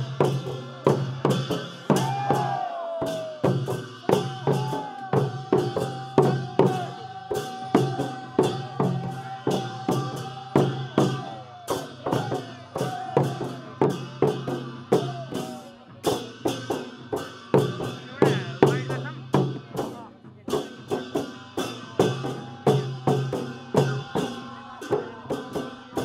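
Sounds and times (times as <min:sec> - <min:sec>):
drum beating steady rhythm: 0:00.0 - 0:26.0.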